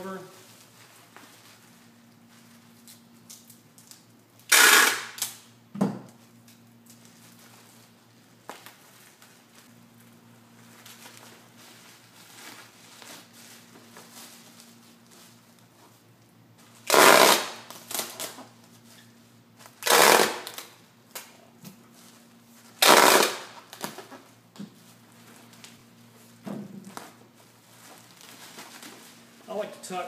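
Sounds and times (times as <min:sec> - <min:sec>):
packing tape ripping: 0:02.8 - 0:05.5, 0:16.8 - 0:18.5, 0:19.6 - 0:21.3, 0:22.8 - 0:24.2
bubble wrap crackling: 0:06.9 - 0:15.9, 0:19.6 - 0:20.8, 0:22.0 - 0:24.2, 0:26.9 - 0:29.7.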